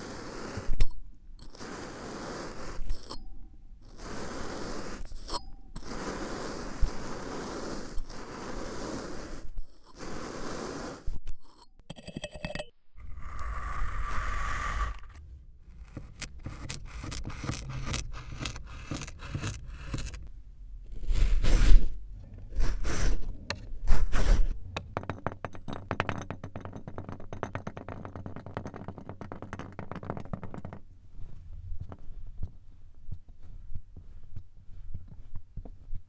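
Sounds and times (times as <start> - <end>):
sand crackling: 0.0 - 0.8, 1.5 - 3.0, 3.8 - 5.2, 5.8 - 11.1
tools scraping kinetic sand: 0.0 - 20.3, 20.9 - 32.5.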